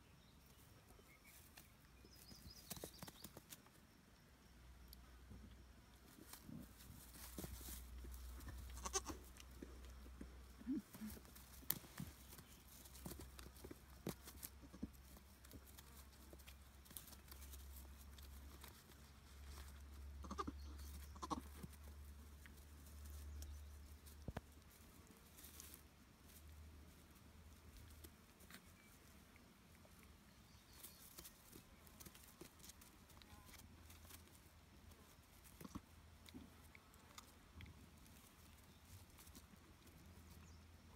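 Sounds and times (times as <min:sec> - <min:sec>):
rustling in dry grass: 0:05.9 - 0:40.9
goat kids bleating faintly: 0:08.4 - 0:09.4, 0:20.1 - 0:21.7.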